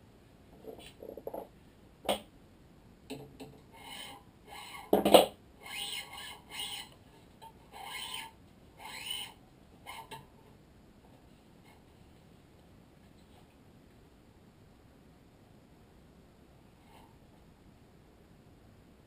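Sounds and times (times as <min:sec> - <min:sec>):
string rasping through grommets: 0:03.4 - 0:10.4.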